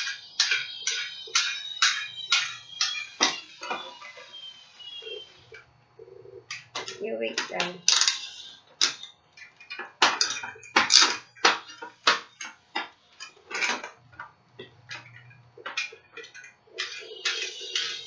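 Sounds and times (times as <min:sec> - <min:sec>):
sharp knocks and rattles: 0:00.0 - 0:04.3, 0:06.4 - 0:18.0.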